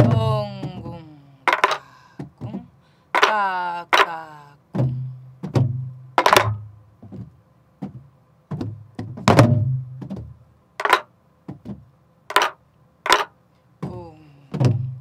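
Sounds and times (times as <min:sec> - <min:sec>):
stick cracks on drum shell: 0:01.5 - 0:01.8, 0:06.2 - 0:06.6, 0:10.8 - 0:11.1, 0:12.3 - 0:13.4.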